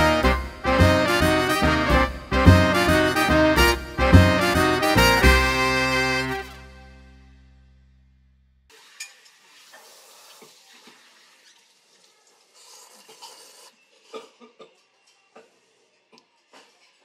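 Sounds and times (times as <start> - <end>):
music track: 0.0 - 8.0
noodles being slurped: 9.5 - 13.8.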